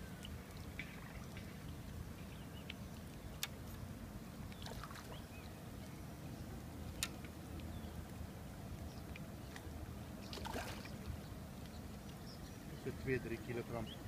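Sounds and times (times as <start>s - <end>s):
fish splashing at water surface: 10.3s - 10.9s
sharp water slaps: 10.3s - 10.9s.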